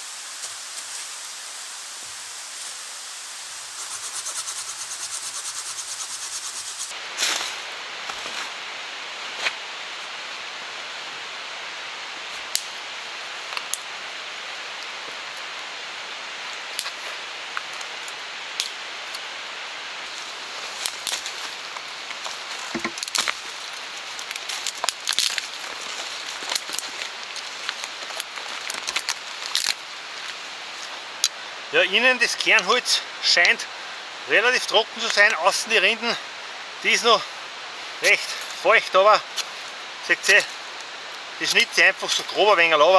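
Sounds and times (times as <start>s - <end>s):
steady hiss: 0.0s - 42.9s
twigs snapping and cracking: 16.8s - 19.2s, 20.8s - 23.5s, 24.1s - 30.4s.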